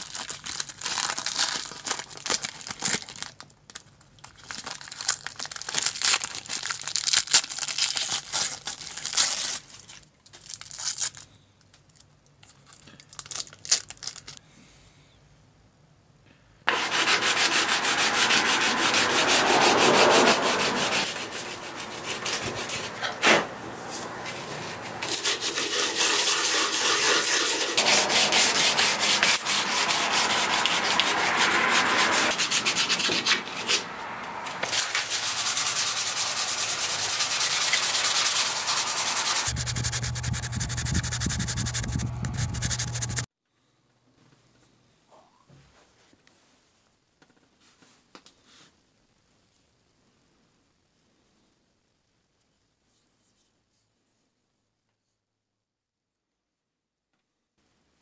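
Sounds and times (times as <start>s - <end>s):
plastic bag crinkling: 0.0s - 11.3s, 11.9s - 14.4s
sanding cloth rasping on wood: 16.7s - 23.0s, 24.4s - 33.8s, 34.7s - 43.3s.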